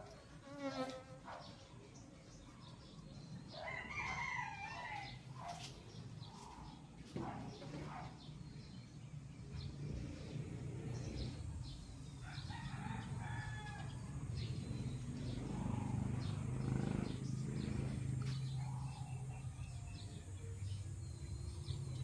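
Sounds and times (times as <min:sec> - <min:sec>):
rooster crowing: 0:03.5 - 0:05.2, 0:12.2 - 0:14.3.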